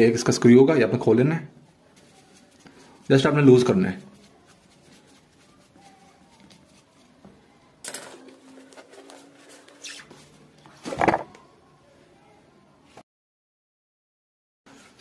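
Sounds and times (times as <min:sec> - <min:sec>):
rubber tube scraping: 0:09.0 - 0:10.4.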